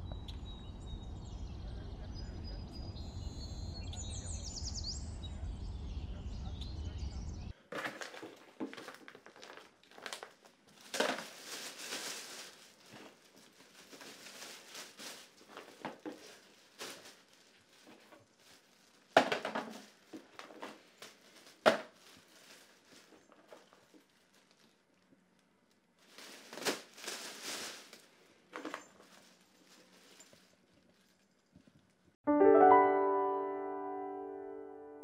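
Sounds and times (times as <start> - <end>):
plastic bin bag rustling: 7.7 - 32.0.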